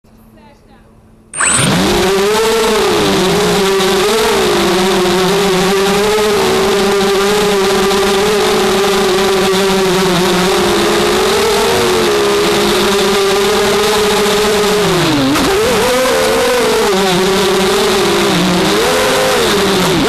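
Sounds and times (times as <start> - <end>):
quadcopter motors whining: 1.4 - 8.8.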